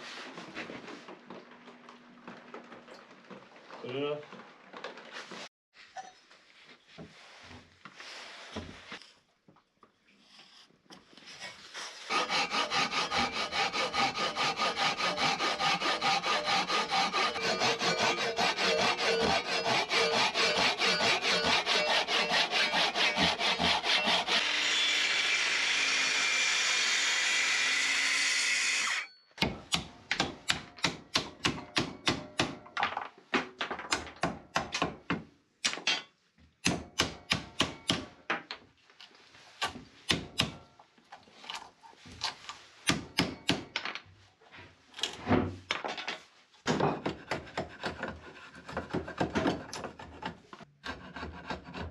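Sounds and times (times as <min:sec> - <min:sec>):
handsaw cutting timber: 0:12.0 - 0:29.1, 0:47.2 - 0:51.9.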